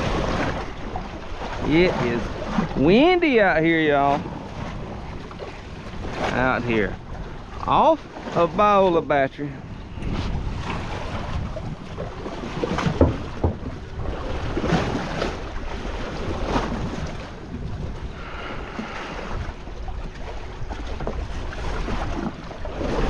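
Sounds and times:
waves slapping boat hull: 0.0 - 23.0
wind buffeting microphone: 0.0 - 23.0
sharp knocks: 12.8 - 13.7.

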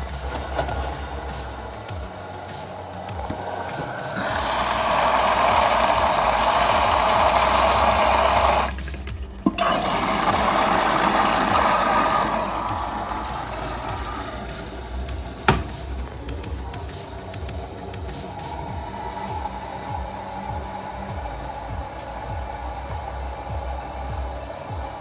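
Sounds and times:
water rushing into washing machine: 0.0 - 17.0
steady low hum: 0.0 - 25.0.

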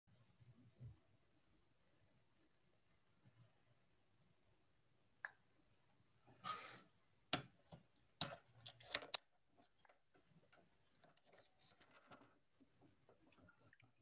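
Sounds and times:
rustling: 8.4 - 14.0.

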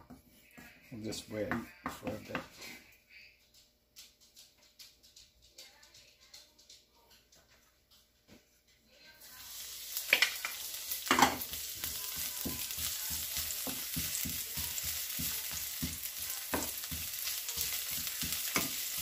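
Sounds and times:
onions sizzling in oil: 9.2 - 19.0
onions clattering into pan: 9.5 - 19.0
wooden spoon knocking pan: 11.1 - 19.0.

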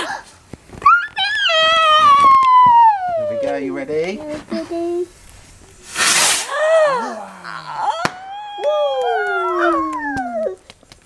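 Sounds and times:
firework whooshing hiss: 5.0 - 7.2, 8.0 - 8.6
firework bang: 5.4 - 6.7, 8.0 - 8.5.

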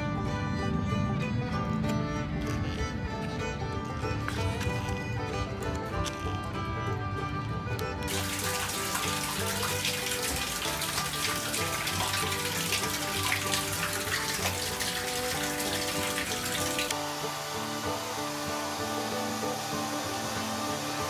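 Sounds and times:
background music with held notes: 0.0 - 21.0
water running: 8.1 - 21.0.

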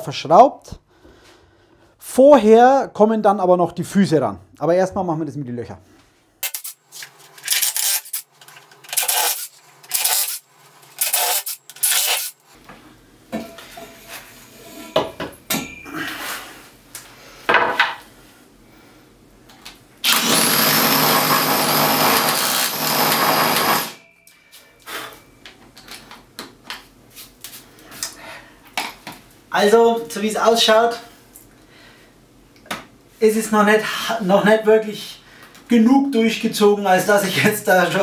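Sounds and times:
cordless drill whining into concrete: 20.1 - 24.0.

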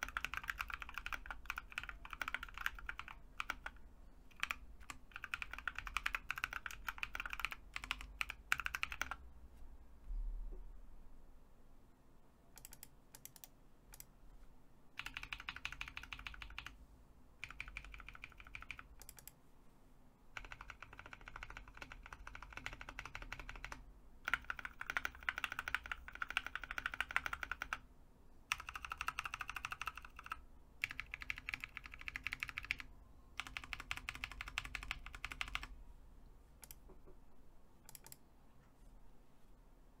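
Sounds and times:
typing on mechanical keyboard: 0.0 - 9.2, 12.6 - 14.1, 15.0 - 16.8, 17.4 - 19.4, 20.4 - 27.8, 28.5 - 35.7, 37.9 - 38.2.

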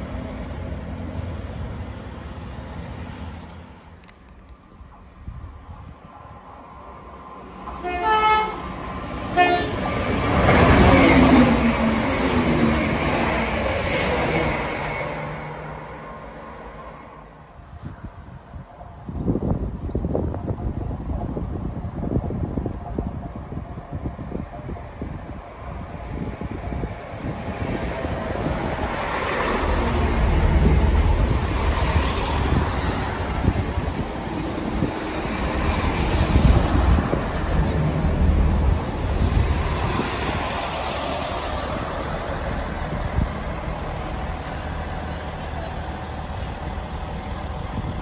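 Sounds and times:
train passing at speed: 0.0 - 48.0
train horn blasts: 7.8 - 8.7, 9.3 - 9.9
diesel engine rumble: 19.0 - 48.0.

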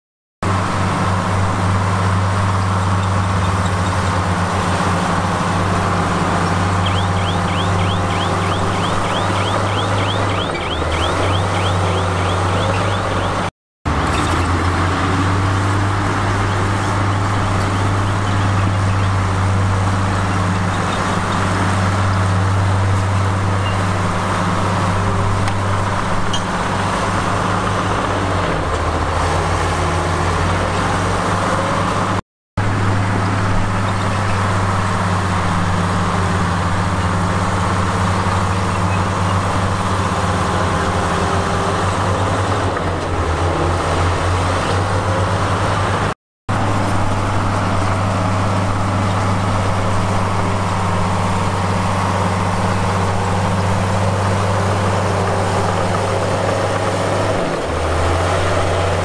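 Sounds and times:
heavy machinery diesel engine: 0.4 - 59.0.

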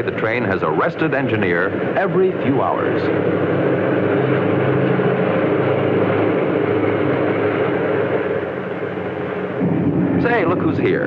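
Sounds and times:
locomotive engine droning: 0.0 - 11.0.

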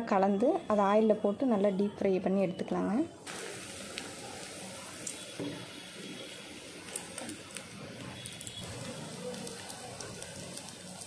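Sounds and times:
food deep-frying in oil: 3.2 - 11.0.

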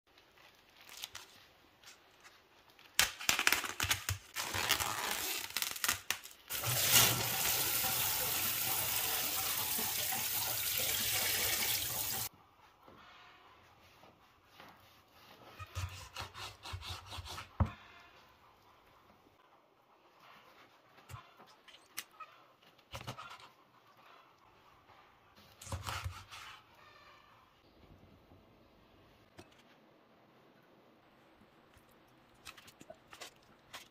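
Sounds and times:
plastic wrap crinkling: 0.1 - 7.2
kitchen tap running: 6.5 - 12.3.

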